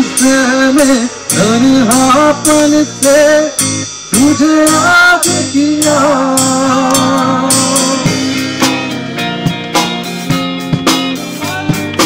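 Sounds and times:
man singing: 0.0 - 8.4, 11.2 - 12.0
cymbal strokes: 0.0 - 11.5
electric guitar: 0.0 - 12.0.

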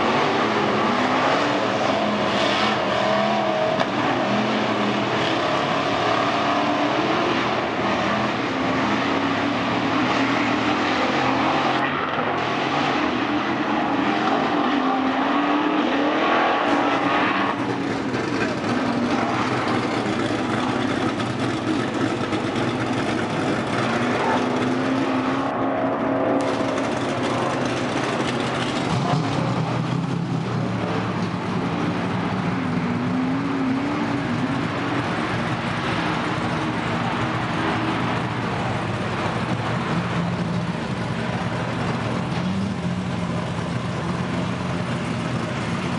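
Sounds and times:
race car engines revving: 0.0 - 45.9.

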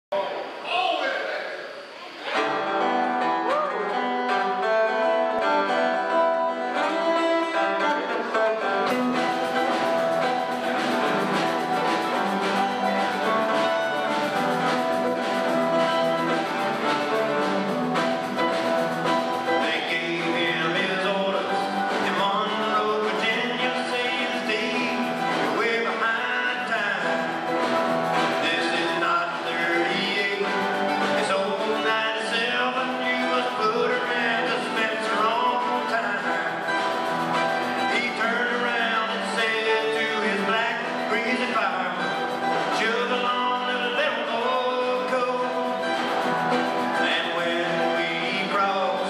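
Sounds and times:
guitars playing: 2.0 - 49.0
drums playing a steady beat: 8.8 - 49.0.

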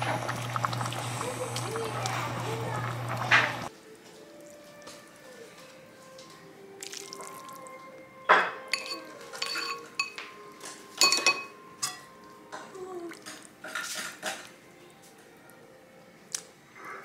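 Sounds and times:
dishes and cutlery clinking: 8.3 - 14.6.

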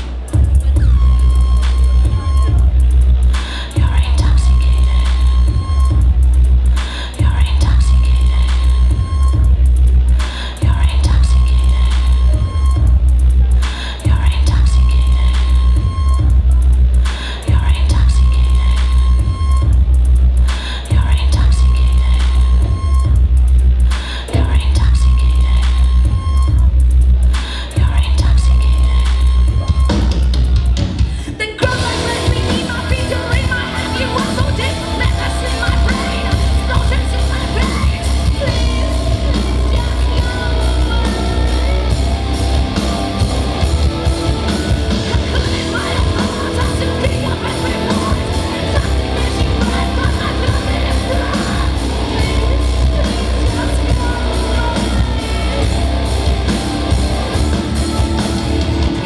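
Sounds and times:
singing: 0.0 - 6.1, 6.8 - 23.2, 27.3 - 58.3
metal band playing live: 28.8 - 59.0.

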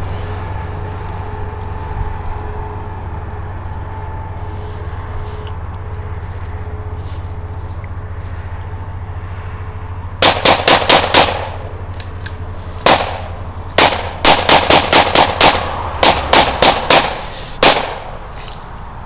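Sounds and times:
gunshots: 10.2 - 11.6, 12.8 - 18.2.

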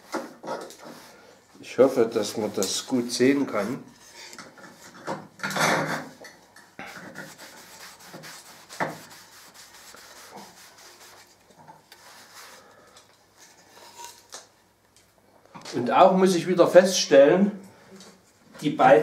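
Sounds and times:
cloth pad scrubbing wood: 6.9 - 12.6.

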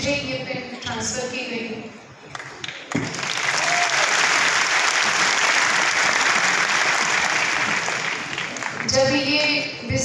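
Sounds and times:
audience applauding: 2.3 - 8.9.

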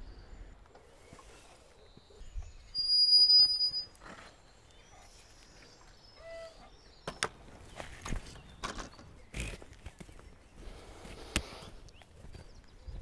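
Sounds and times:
wooden gate squeaking: 2.8 - 4.4.

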